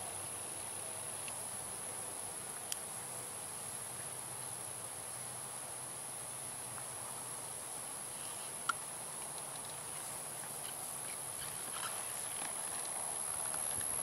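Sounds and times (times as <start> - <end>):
insects droning: 0.0 - 14.0
saddle tack creaking: 10.5 - 14.0.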